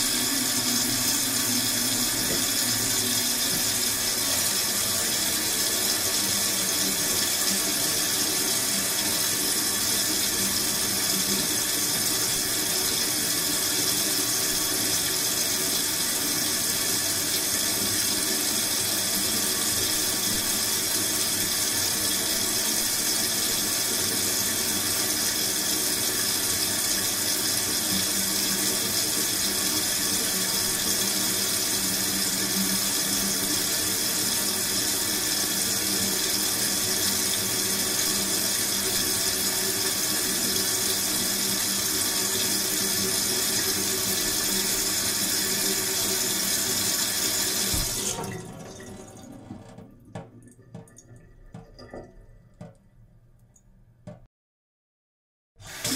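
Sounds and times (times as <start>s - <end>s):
tap water running into sink: 0.0s - 52.9s, 55.6s - 55.9s.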